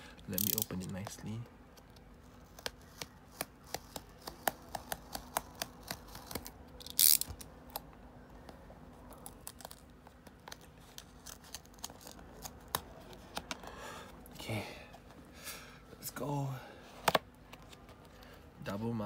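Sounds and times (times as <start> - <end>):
fingers clicking cardboard flap: 1.8 - 6.5
knife clicking on cardboard: 2.6 - 6.4.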